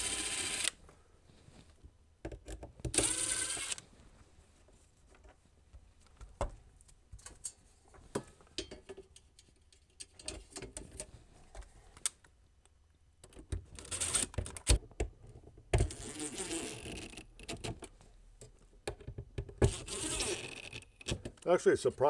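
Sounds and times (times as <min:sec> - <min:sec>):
drill driving screw into wood: 0:00.0 - 0:00.8, 0:02.9 - 0:03.8, 0:19.6 - 0:20.8.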